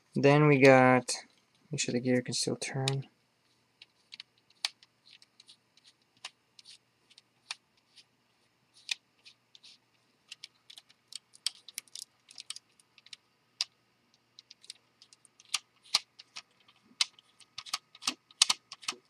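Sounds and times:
plastic toy bricks clicking: 14.4 - 19.0.

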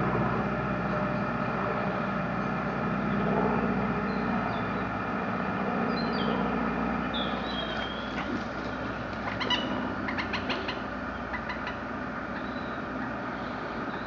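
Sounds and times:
model boat motor humming: 0.0 - 14.0
birds chirping: 4.0 - 5.0, 5.8 - 14.0.

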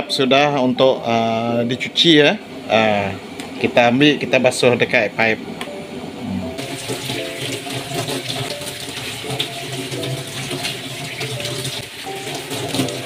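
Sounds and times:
hands rinsing and squeezing in water: 6.6 - 13.0
tap water running into steel sink: 6.6 - 13.0.

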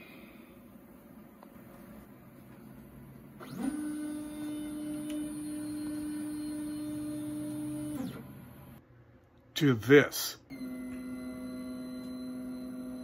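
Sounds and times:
stepper motors whining: 3.4 - 8.8, 10.5 - 13.0.

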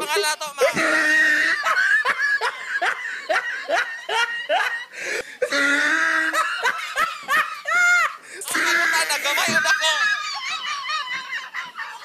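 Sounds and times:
woman laughing: 0.6 - 4.9, 6.2 - 8.2, 8.9 - 12.0.

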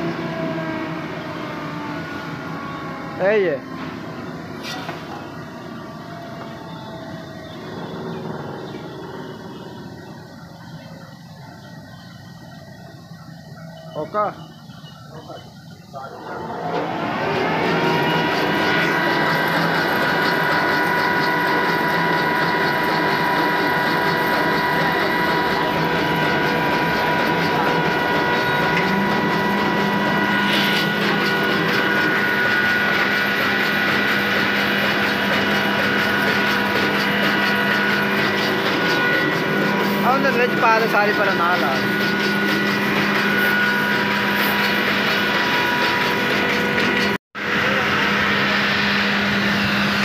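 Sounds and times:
blower whirring and whining: 0.0 - 50.0
low hum: 15.7 - 50.0.

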